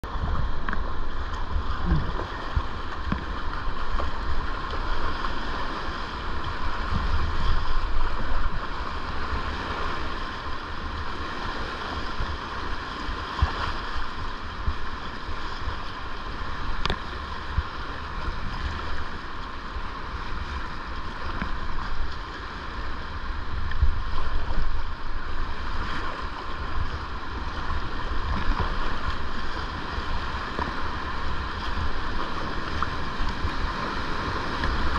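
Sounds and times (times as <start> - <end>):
paddle splashing in water: 0.0 - 34.9
whitewater rapids rushing: 0.0 - 34.9
wind rumble on microphone: 0.0 - 34.9.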